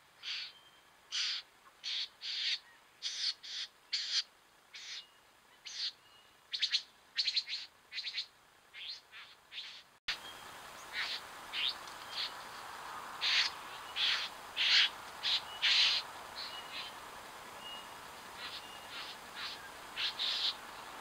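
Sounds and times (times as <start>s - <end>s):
microphone hiss: 0.0s - 21.0s
short scratchy bird calls: 1.1s - 4.2s, 5.6s - 9.9s, 10.9s - 12.3s, 13.2s - 16.9s, 18.4s - 20.6s.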